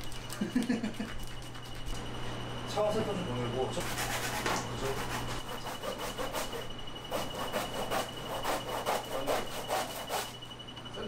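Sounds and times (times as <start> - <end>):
knife sawing through fish: 3.8 - 10.4.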